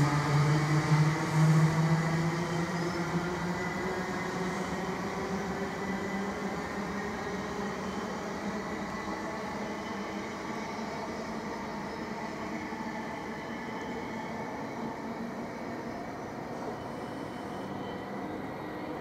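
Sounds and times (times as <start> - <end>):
electric train hum: 0.0 - 19.0.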